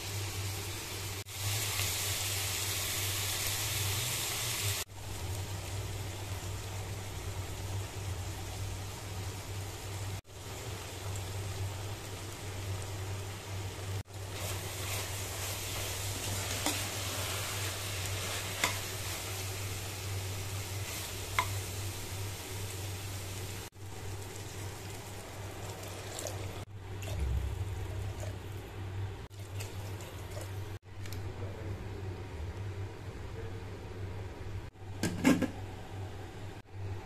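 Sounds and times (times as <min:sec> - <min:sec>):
chicken sizzling in a pot: 0:00.0 - 0:30.8
low hum: 0:26.7 - 0:34.7.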